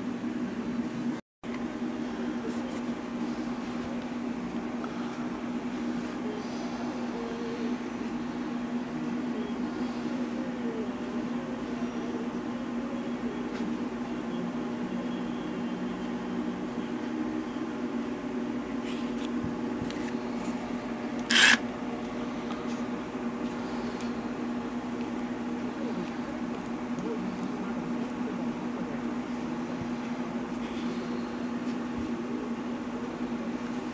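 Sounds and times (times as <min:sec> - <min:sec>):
impact driver motor whirring: 0:21.2 - 0:21.6.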